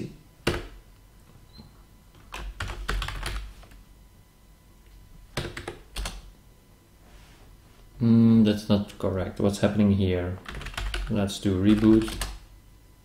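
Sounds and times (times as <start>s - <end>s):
computer keyboard typing: 0.4s - 0.8s, 2.3s - 3.5s, 5.4s - 6.3s, 10.4s - 12.4s.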